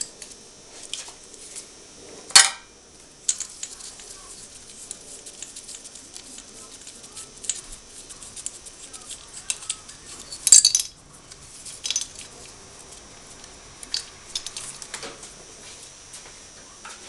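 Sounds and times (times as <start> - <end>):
metal clatter: 8.4 - 11.0.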